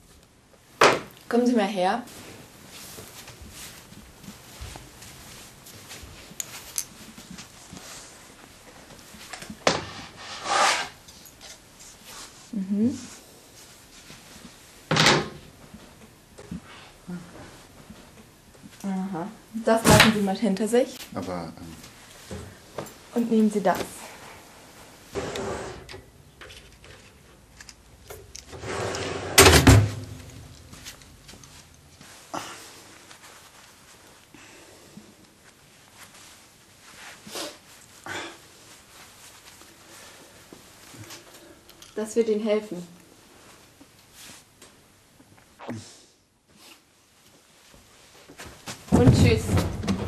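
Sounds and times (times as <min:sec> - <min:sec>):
fabric rustling: 0:02.0 - 0:09.3, 0:29.9 - 0:34.3, 0:35.2 - 0:41.6.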